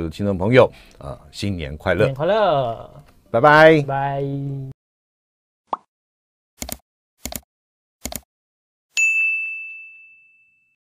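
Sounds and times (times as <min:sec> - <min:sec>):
quick double clicks: 0:08.0 - 0:08.3
bright bell-like ding: 0:09.0 - 0:10.8.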